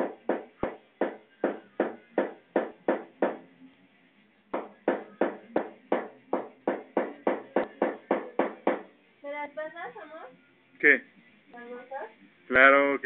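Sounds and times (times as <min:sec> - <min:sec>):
hammer striking nail: 0:00.0 - 0:03.4, 0:04.6 - 0:08.9.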